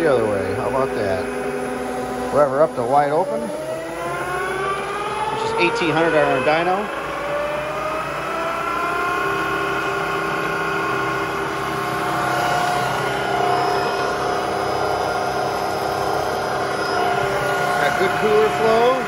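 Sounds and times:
transmission mechanical whine: 0.0s - 19.0s.

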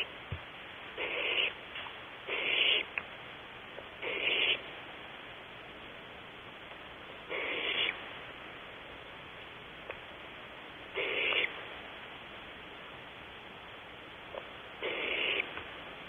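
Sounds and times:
owl nestlings rasping begging calls: 1.0s - 1.6s, 2.3s - 3.0s, 4.0s - 4.6s, 7.2s - 8.0s, 10.9s - 11.5s, 14.3s - 15.6s.

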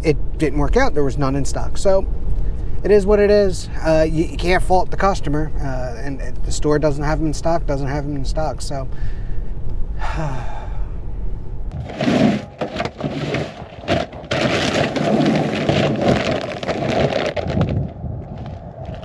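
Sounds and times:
dense crackling rustling noise: 11.7s - 19.0s.

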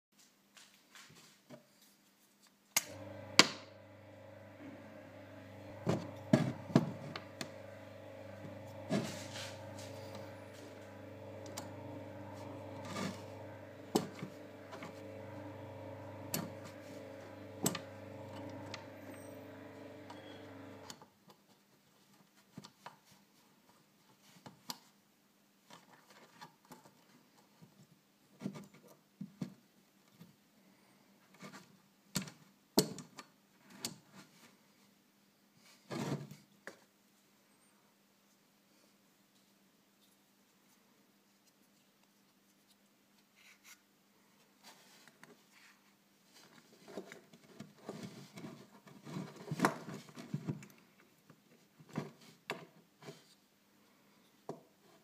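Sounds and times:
steady hum: 2.8s - 20.9s.

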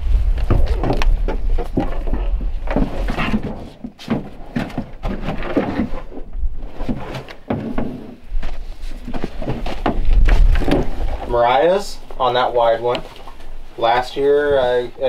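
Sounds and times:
wind rumble on microphone: 0.0s - 3.5s, 8.2s - 12.2s.

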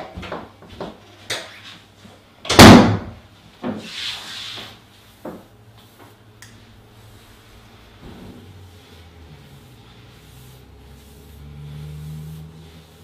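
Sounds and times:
door banging shut: 2.5s - 3.1s
scraping rub: 5.8s - 13.0s.

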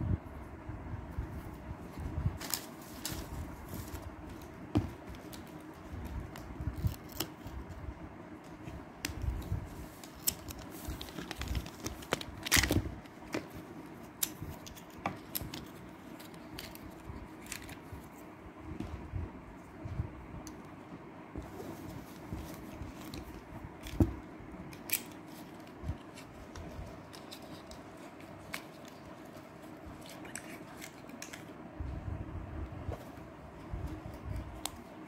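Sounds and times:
cardboard rubbing and rustling: 1.4s - 7.7s, 8.5s - 18.2s, 21.4s - 24.2s.

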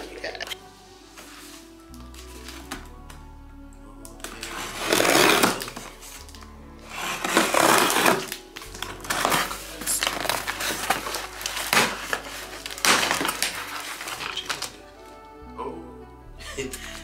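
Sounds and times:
background music: 0.0s - 17.0s
scissors cutting packing tape: 4.2s - 14.8s
cardboard box tearing open: 4.4s - 14.7s
cardboard flaps crackling: 7.2s - 14.8s.

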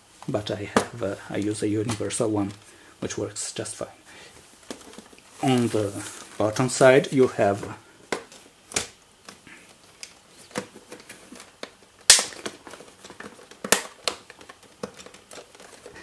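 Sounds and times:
faint handling rustle: 0.0s - 8.6s
plastic cover clicks and knocks: 8.1s - 9.4s, 10.0s - 16.0s.

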